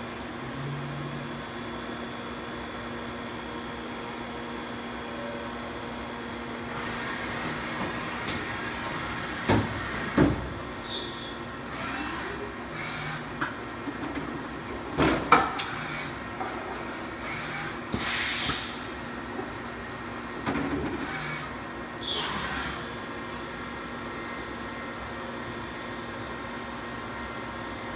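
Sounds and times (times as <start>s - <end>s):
machine hum with motor whine: 0.0s - 27.9s.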